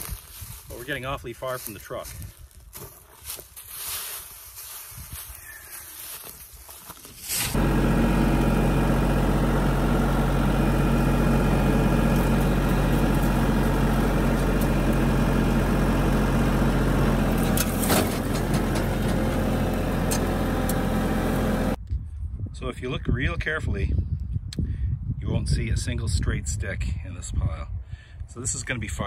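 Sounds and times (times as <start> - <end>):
engine idling: 7.5 - 21.8.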